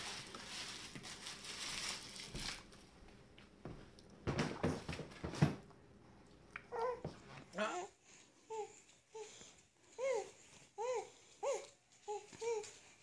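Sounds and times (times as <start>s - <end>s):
rustling handling of pacifier: 0.0s - 2.8s, 11.4s - 13.0s.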